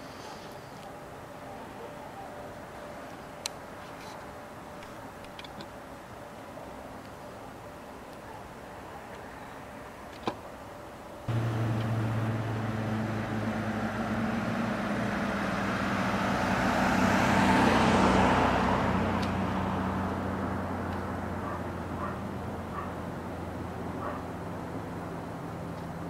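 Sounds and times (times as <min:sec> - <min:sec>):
steady low hum: 0:11.2 - 0:15.6
road vehicle passing: 0:11.3 - 0:26.0.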